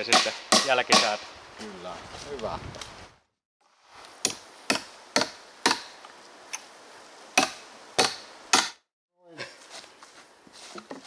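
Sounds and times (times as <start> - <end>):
hammer striking wood: 0.0 - 1.2, 4.2 - 5.9, 7.4 - 8.8.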